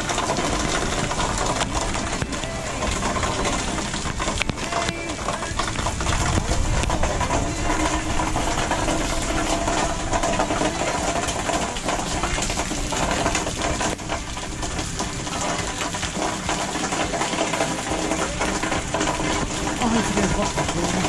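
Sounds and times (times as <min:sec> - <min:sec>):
wind rumble on microphone: 0:00.0 - 0:15.3
heavy rain falling: 0:00.0 - 0:21.0.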